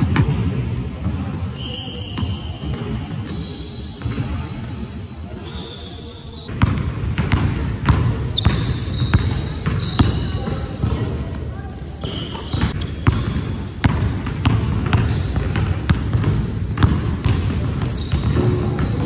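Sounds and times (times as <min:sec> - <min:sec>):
sneakers squeaking: 0:00.0 - 0:19.0
basketball bouncing on wooden floor: 0:06.6 - 0:11.0, 0:12.5 - 0:19.0.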